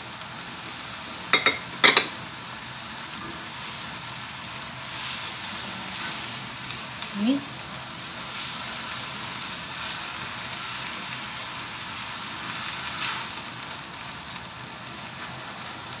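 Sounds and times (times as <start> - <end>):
food sizzling in a wok: 0.0 - 16.0
spatula clattering in wok: 1.3 - 2.2.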